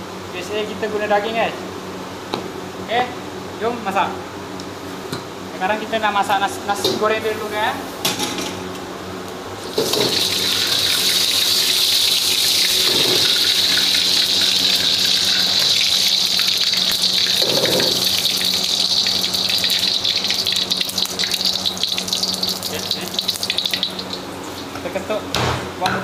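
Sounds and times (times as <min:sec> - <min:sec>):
oil sizzling in a wok: 0:09.6 - 0:24.8.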